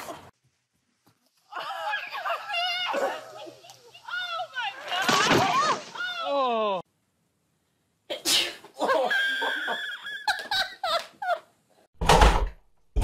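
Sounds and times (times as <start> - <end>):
person sneezing: 8.1 - 8.7
people laughing and squealing: 8.8 - 11.4.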